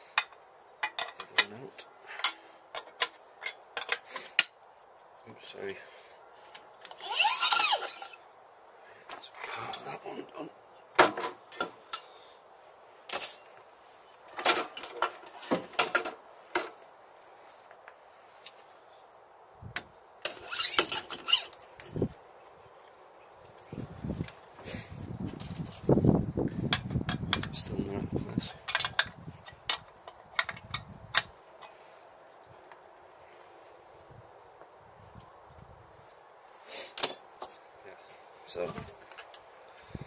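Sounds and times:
tools clicking and knocking: 0.2s - 1.5s, 26.7s - 27.6s, 28.6s - 31.7s
metal parts clinking on workbench: 7.2s - 8.2s.

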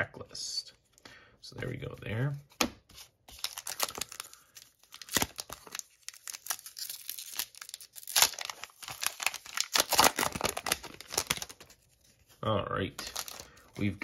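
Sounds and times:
wrapper torn open and crinkled: 3.3s - 11.8s, 13.0s - 13.5s.

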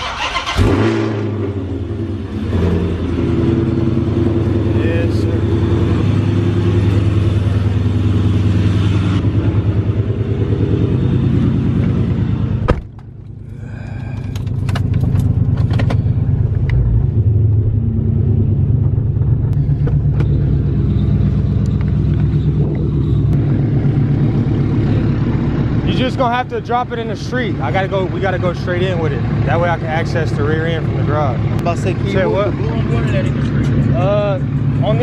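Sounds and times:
car engine idling: 0.0s - 35.0s
car door shutting: 12.6s - 13.1s.

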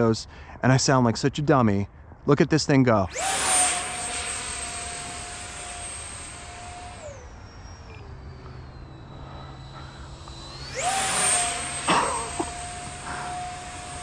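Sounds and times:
high-pitched electric fan whine: 3.0s - 14.0s
rushing air: 3.1s - 14.0s.

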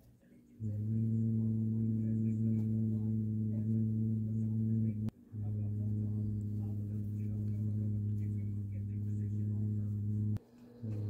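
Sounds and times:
steady low hum: 0.2s - 11.0s.

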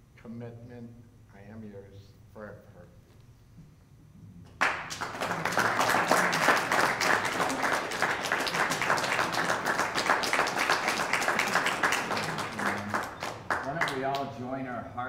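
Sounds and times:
audience applauding: 4.6s - 14.4s.

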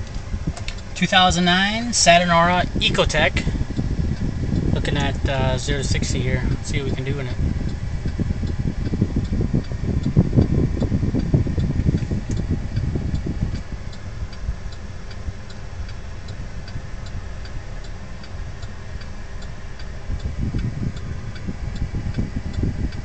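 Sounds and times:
car engine idling: 0.0s - 23.0s
turn signal ticking: 0.0s - 23.0s.

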